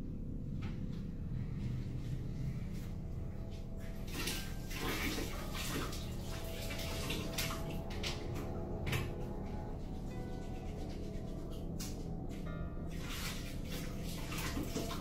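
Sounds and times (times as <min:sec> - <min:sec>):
low steady hum: 0:00.0 - 0:15.0
water splashing in sink: 0:04.1 - 0:09.2, 0:12.9 - 0:15.0.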